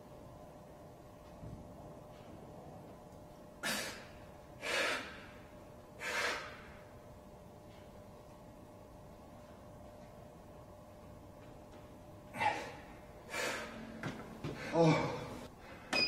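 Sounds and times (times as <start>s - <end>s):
man breathing forcefully: 3.6s - 6.8s, 12.3s - 15.9s.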